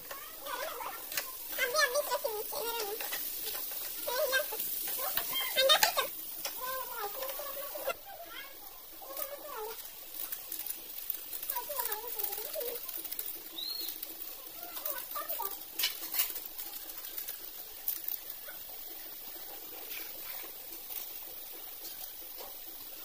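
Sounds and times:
faint wavering calls: 0.0 - 10.3, 11.4 - 15.6
hand mixing vegetables in steel bowl: 0.0 - 22.7.

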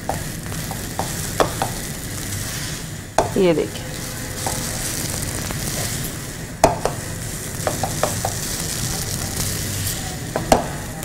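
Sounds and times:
soft frying sizzle: 0.0 - 11.0
spatula knocking on pan: 0.1 - 1.8, 3.2 - 3.4, 6.6 - 7.0, 7.6 - 8.4
spatula scraping frying pan: 0.1 - 10.9.

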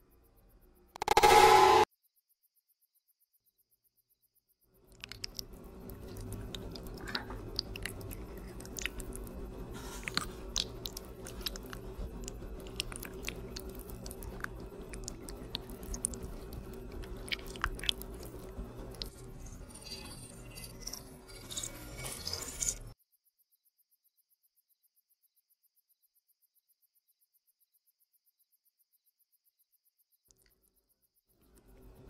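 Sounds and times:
low steady hum: 4.8 - 19.9
wet sticky squelches: 4.9 - 19.1.

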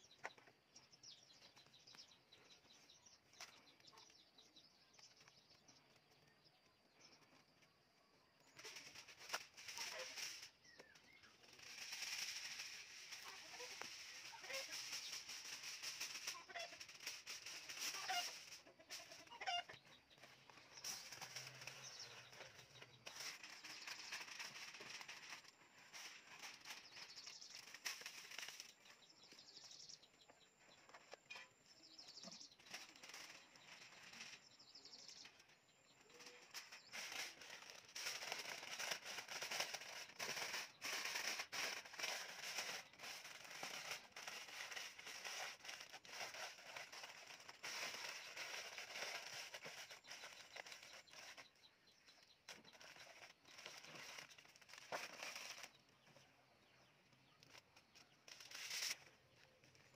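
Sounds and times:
aluminium foil crinkling: 8.4 - 29.6, 32.2 - 34.5, 35.2 - 56.2, 57.2 - 59.9.

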